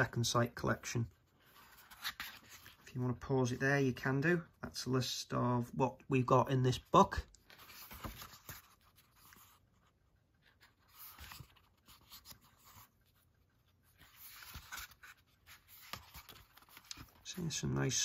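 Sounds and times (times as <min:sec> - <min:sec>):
paper pages turning: 0:01.4 - 0:02.9, 0:07.1 - 0:18.0.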